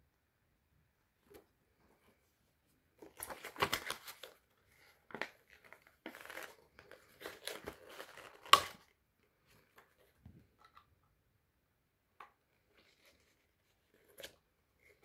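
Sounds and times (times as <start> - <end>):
plastic rustling and crinkling: 3.0 - 10.7.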